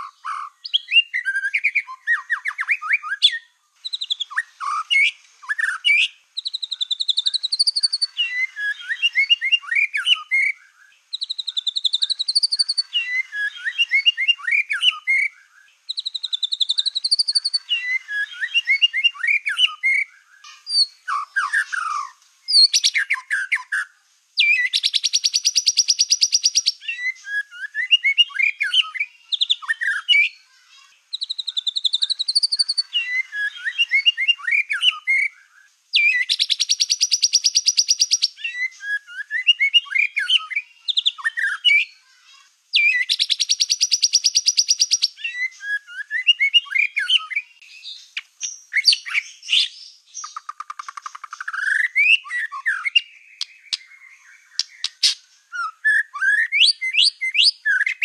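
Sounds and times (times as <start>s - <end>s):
rapid pulsed bird trill: 0.0s - 58.0s
songbird singing: 0.0s - 58.0s.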